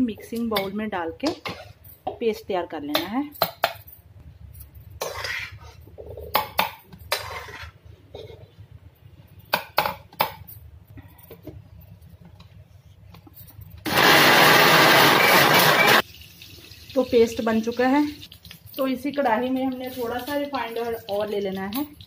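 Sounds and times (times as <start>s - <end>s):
mixer grinder running: 13.9s - 16.0s.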